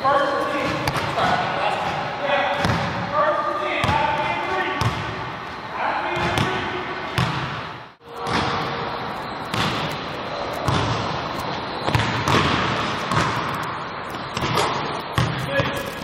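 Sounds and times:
basketballs bouncing on wood floor: 0.6 - 3.0, 3.8 - 5.2, 6.2 - 6.6, 7.2 - 8.6, 10.6 - 11.0, 11.8 - 13.5, 14.4 - 15.9.

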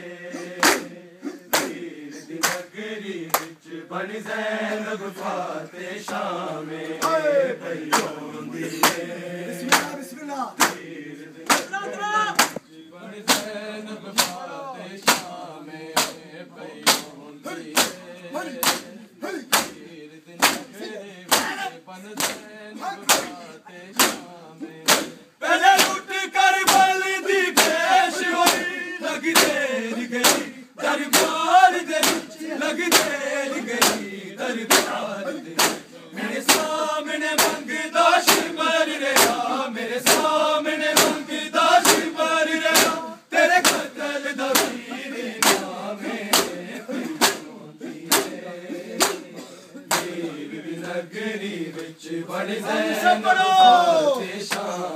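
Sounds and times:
male voices chanting: 0.0 - 54.9
men slapping chests in unison: 0.3 - 54.9.

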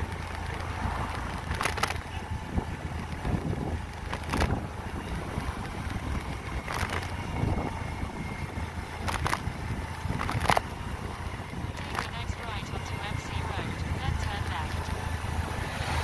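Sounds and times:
vehicle rumbling on road: 0.0 - 16.0
wind noise on microphone: 0.0 - 16.0.

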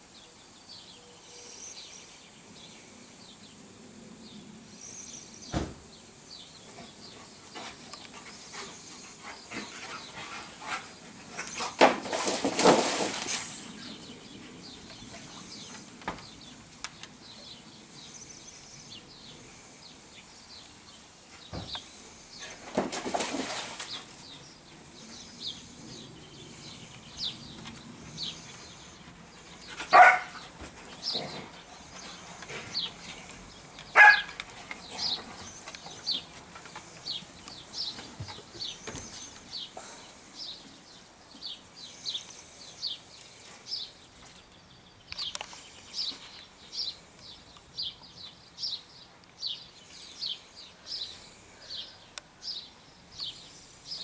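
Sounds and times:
dog barking: 29.9 - 30.4, 34.0 - 34.4.

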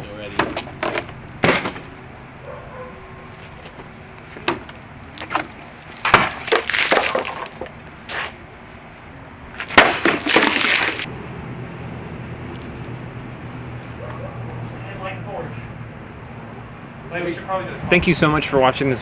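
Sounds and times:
blade whacking plastic jug: 4.4 - 7.7, 9.6 - 11.1
water splashing: 5.0 - 7.7, 9.9 - 11.1.

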